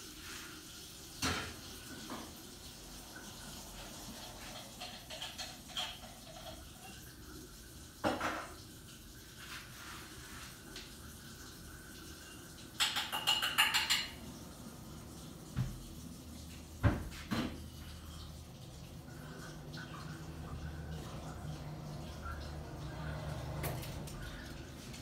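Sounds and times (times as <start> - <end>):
dishes knocking: 12.8 - 14.2.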